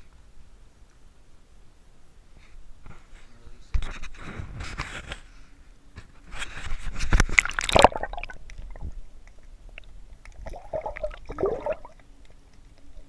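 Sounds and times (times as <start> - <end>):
water splashing and sloshing: 6.7 - 13.0
faint underwater clicks: 7.1 - 13.0.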